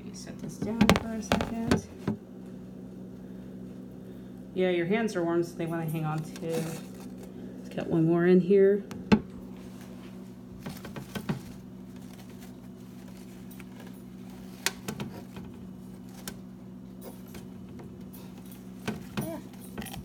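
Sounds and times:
plastic containers clicking: 0.6 - 1.9.

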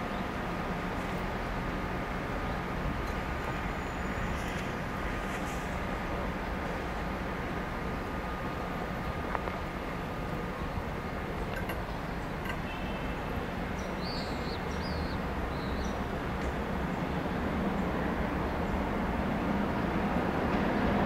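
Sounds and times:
passenger train rumbling: 0.0 - 21.0
bird chirps: 13.8 - 16.0.

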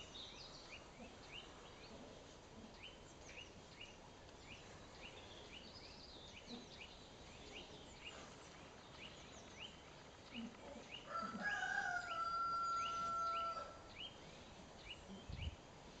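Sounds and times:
rooster crowing: 11.1 - 13.9.

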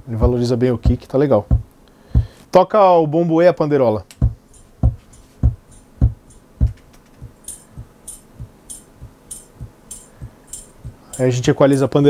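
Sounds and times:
kick drum thumps: 0.8 - 2.4, 4.2 - 11.0
tambourine jingles: 4.4 - 11.4.

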